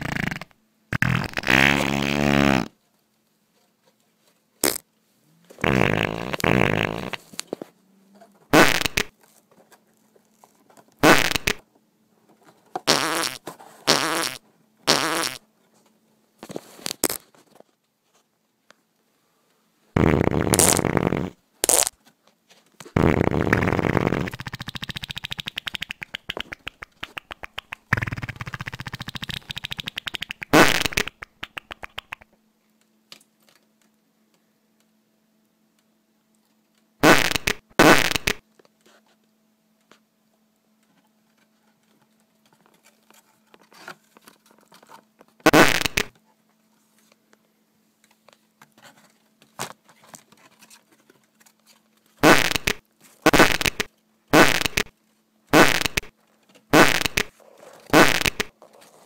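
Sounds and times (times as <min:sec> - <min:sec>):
short fart blasts: 0:00.0 - 0:02.8, 0:04.6 - 0:04.9, 0:05.6 - 0:07.3, 0:08.5 - 0:09.1, 0:11.0 - 0:11.6, 0:12.8 - 0:15.4, 0:20.0 - 0:22.0, 0:23.0 - 0:32.2, 0:37.0 - 0:38.4, 0:45.4 - 0:46.1, 0:52.2 - 0:54.9, 0:55.5 - 0:56.1, 0:56.7 - 0:57.3, 0:57.9 - 0:58.6
sputtering fart sound effect: 0:00.0 - 0:02.8, 0:04.6 - 0:04.8, 0:05.6 - 0:07.3, 0:08.5 - 0:09.1, 0:11.0 - 0:11.6, 0:12.8 - 0:15.4, 0:20.0 - 0:22.0, 0:23.0 - 0:32.3, 0:37.0 - 0:38.4, 0:45.4 - 0:46.1, 0:52.2 - 0:54.9, 0:55.5 - 0:56.1, 0:56.7 - 0:58.6.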